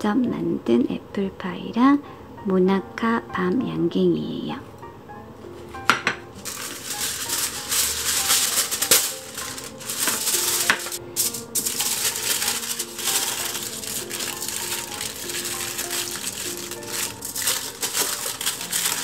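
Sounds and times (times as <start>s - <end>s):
plastic wrapper crinkling: 6.4s - 19.0s.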